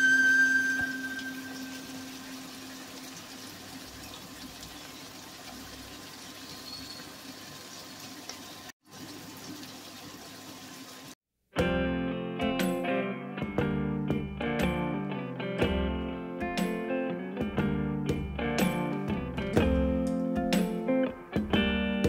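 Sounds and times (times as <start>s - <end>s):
food sizzling in a frying pan: 0.0s - 11.2s.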